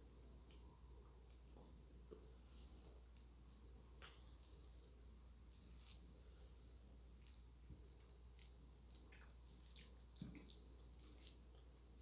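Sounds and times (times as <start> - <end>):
low steady hum: 0.0 - 12.0
fingers squishing food: 7.2 - 12.0.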